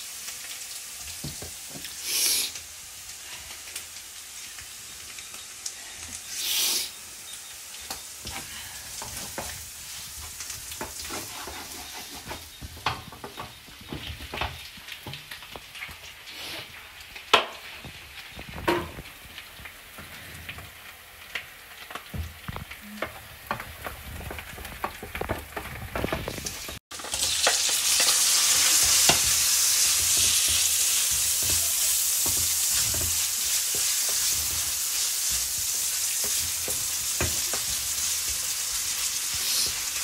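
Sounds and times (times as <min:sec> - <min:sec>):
onion frying in oil: 0:00.0 - 0:40.0
wooden spatula scraping a pan: 0:08.2 - 0:14.4, 0:23.5 - 0:40.0.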